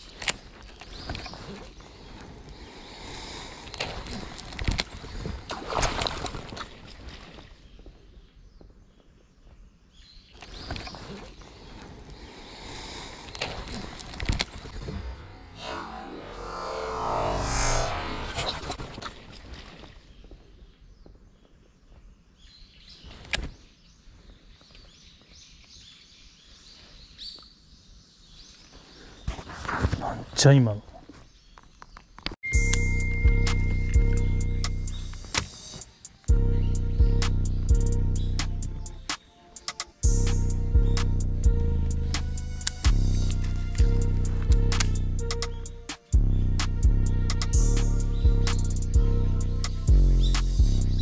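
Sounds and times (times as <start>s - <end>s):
fish splashing in water: 3.8s - 7.6s
birds chirping: 6.8s - 51.0s
sharp click: 44.7s - 46.7s.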